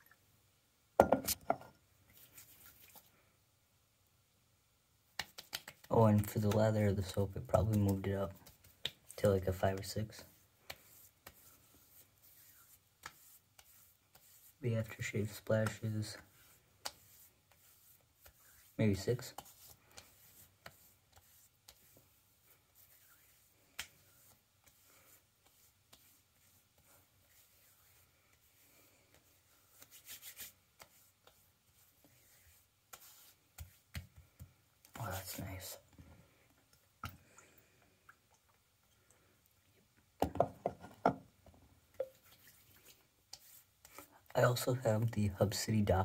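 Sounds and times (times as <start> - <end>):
bottles knocking on counter: 1.0 - 1.7
hands rubbing skin: 2.1 - 3.1, 5.1 - 35.9, 42.0 - 45.2
hands slapping face: 5.1 - 6.7, 7.6 - 9.1, 16.8 - 17.1, 23.7 - 24.0.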